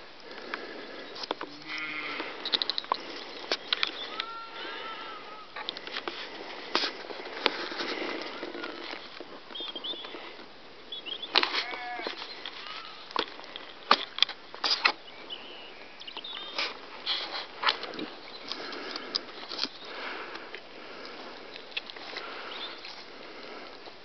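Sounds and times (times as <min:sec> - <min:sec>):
faint bird chirps: 0:03.2 - 0:05.6, 0:09.0 - 0:10.3, 0:10.9 - 0:13.0, 0:15.0 - 0:16.7.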